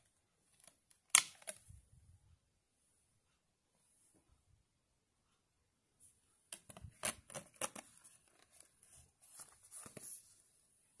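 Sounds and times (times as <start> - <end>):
papery rustles: 7.4 - 10.4.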